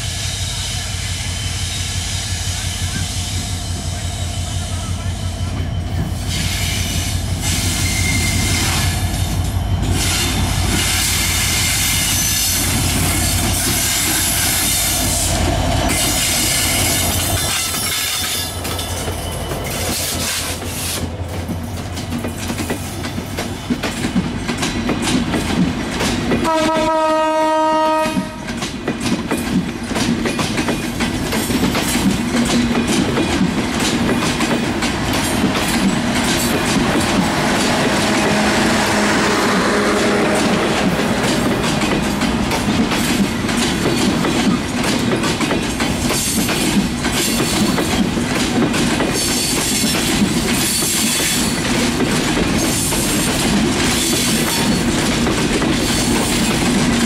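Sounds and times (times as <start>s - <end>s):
train wheels clicking over rail joints: 5.5s - 57.0s
train horn blast: 26.4s - 28.6s, 37.9s - 42.0s
locomotive engine rumble: 31.0s - 46.0s.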